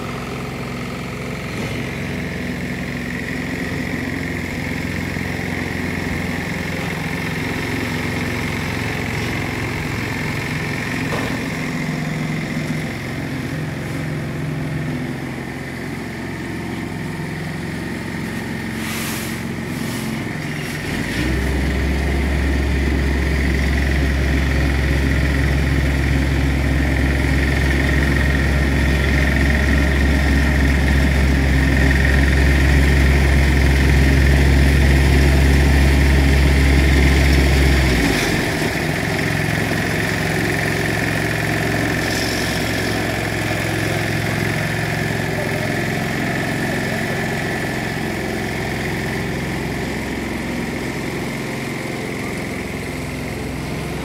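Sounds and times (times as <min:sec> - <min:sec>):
diesel engine idling: 0:00.0 - 0:54.0
brief scrapes: 0:18.8 - 0:20.3.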